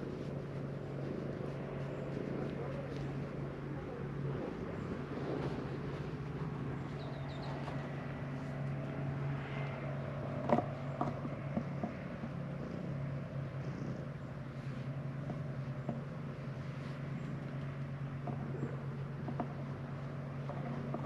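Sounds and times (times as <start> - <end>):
cat purring: 11.4 - 14.2.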